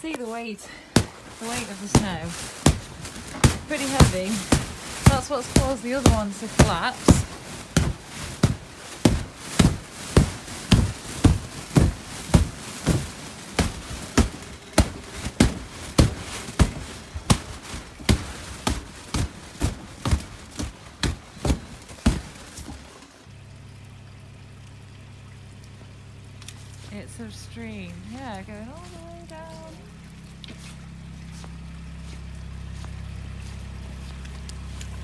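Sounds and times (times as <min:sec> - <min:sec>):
low steady hum: 0:00.0 - 0:35.0
dull knocks: 0:01.0 - 0:23.0.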